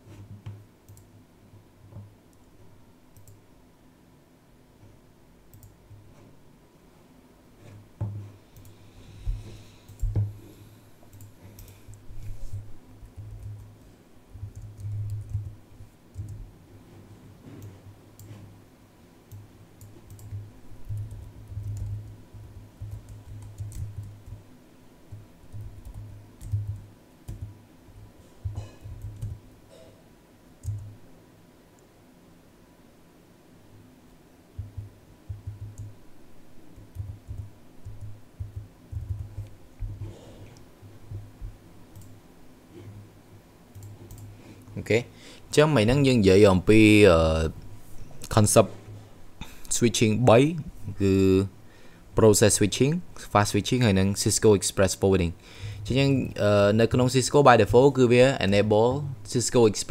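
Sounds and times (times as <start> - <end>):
typing on computer keyboard: 13.0 - 13.8, 14.4 - 16.4, 19.3 - 24.4, 25.1 - 27.5, 28.8 - 29.4, 30.6 - 30.9, 34.6 - 36.0, 36.8 - 40.0.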